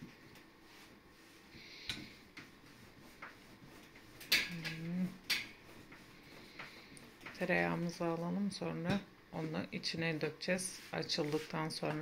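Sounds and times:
rolling pin on dough: 0.0 - 12.0
wordless voice: 7.4 - 12.0.

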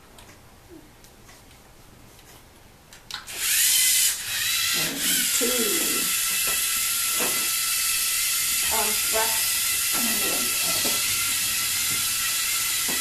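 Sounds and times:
electric motors whining: 3.3 - 13.0.

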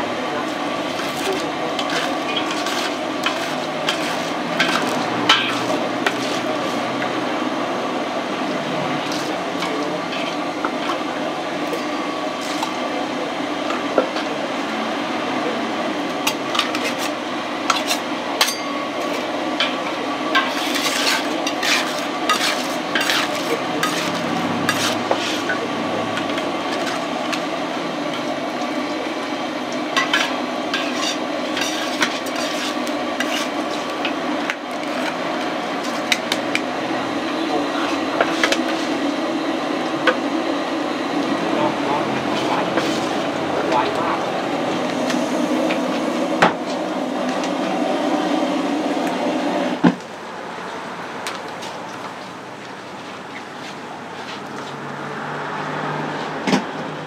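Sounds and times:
steady hum: 0.0 - 51.4
metal scraper scraping steel bowl: 1.0 - 6.8, 20.4 - 25.6, 30.0 - 33.9, 42.3 - 43.2.

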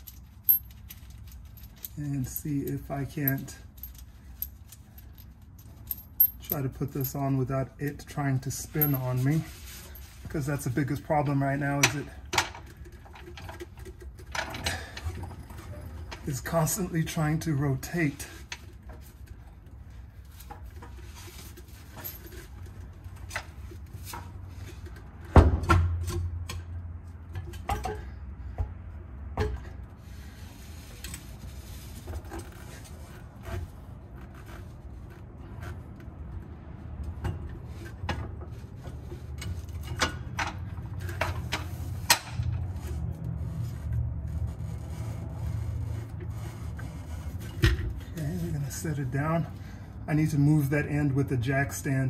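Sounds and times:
metal clinks and knocks: 0.0 - 17.2, 18.1 - 28.2.

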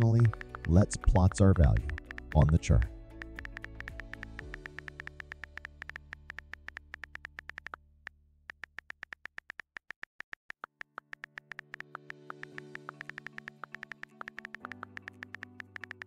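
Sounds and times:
keyboard typing clicks: 0.0 - 7.8, 8.5 - 16.0
soft synthesizer music: 0.0 - 7.8, 11.0 - 16.0.

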